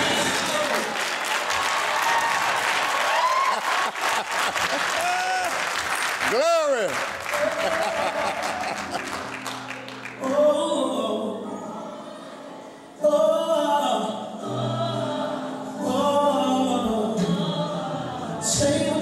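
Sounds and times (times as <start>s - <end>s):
choir singing gospel song: 0.0s - 1.0s, 10.2s - 19.0s
applause: 0.0s - 10.3s.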